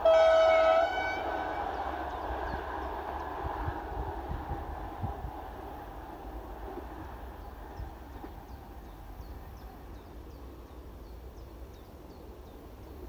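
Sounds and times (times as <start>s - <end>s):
wind rumble on microphone: 1.9s - 10.0s.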